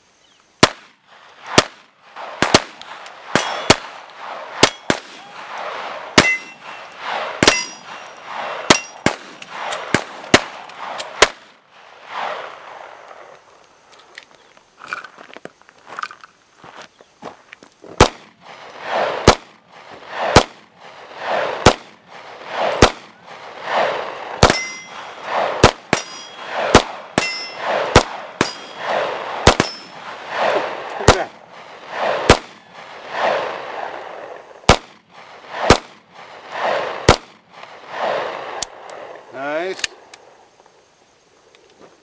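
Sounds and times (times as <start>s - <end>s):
steel target plate clang: 3.4s - 3.8s, 4.6s - 5.3s, 6.2s - 10.1s, 24.4s - 26.6s, 27.2s - 27.8s, 28.4s - 30.0s
steel ringing high tone: 6.2s - 9.0s, 24.5s - 25.3s, 25.9s - 26.6s, 27.2s - 27.7s, 28.4s - 28.9s
handgun shots: 7.4s - 8.0s.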